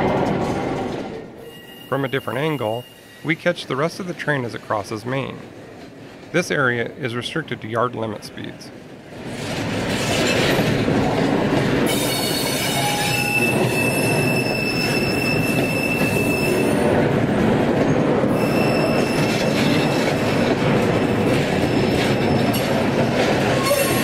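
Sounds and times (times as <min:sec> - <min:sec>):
high-pitched wheel squeal: 0:01.4 - 0:03.3, 0:11.9 - 0:16.8, 0:18.3 - 0:19.7.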